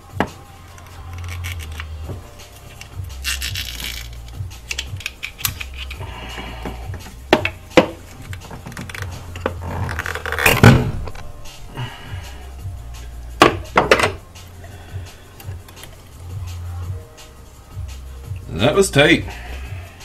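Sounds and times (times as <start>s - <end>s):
background music: 0.0s - 20.0s
clicks and knocks of fittings: 0.7s - 11.2s.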